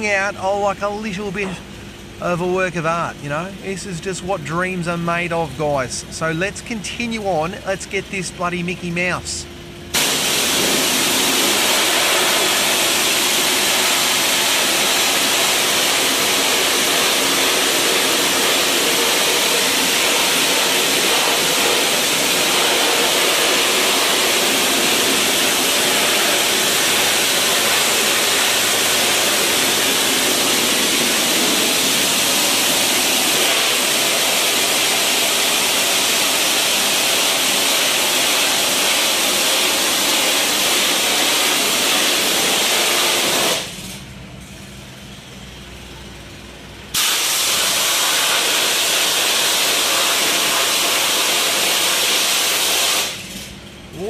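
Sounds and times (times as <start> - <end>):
high-pressure water spray hissing: 10.0 - 44.0, 47.0 - 53.4.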